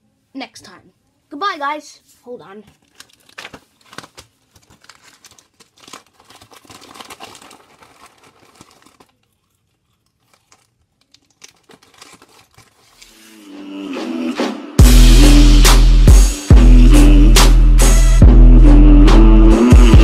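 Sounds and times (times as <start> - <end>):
paper packaging crinkling: 2.6 - 13.2.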